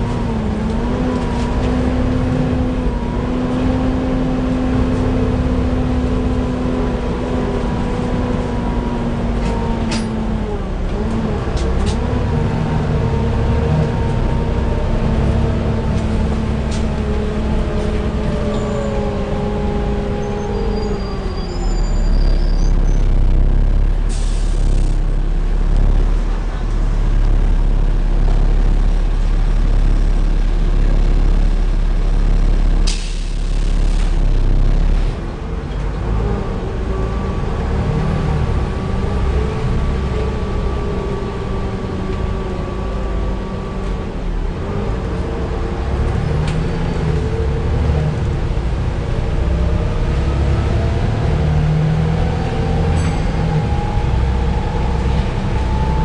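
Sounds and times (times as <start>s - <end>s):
bus engine rumble: 0.0s - 56.0s
whining tones: 49.4s - 56.0s.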